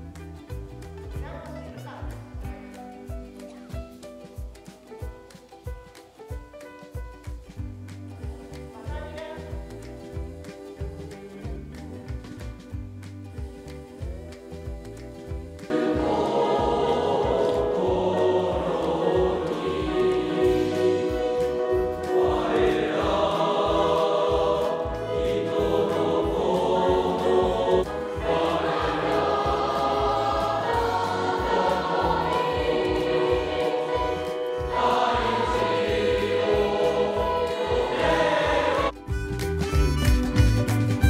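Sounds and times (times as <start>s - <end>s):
choir singing: 8.2s - 12.4s, 13.3s - 39.0s.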